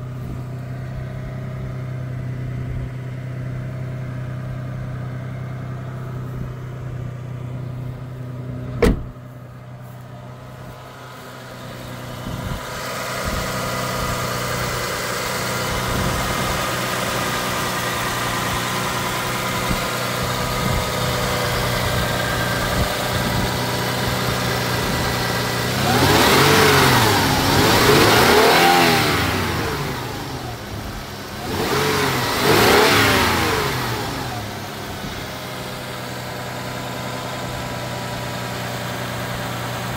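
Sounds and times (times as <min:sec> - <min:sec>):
engine idling: 0:00.0 - 0:39.9
engine revving in blips: 0:24.1 - 0:30.7, 0:31.3 - 0:34.6.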